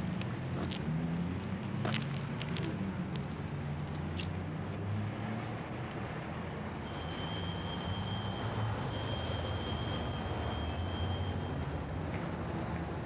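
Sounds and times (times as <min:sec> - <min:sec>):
electric bell ringing: 0:06.8 - 0:12.6.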